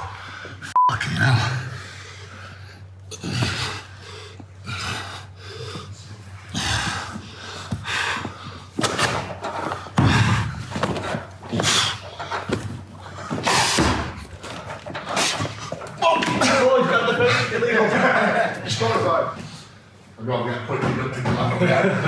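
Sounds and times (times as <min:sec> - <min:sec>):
men breathing heavily: 0:00.0 - 0:16.0, 0:16.6 - 0:18.4, 0:19.1 - 0:20.2
bodies bumping mat and fence: 0:06.8 - 0:16.9.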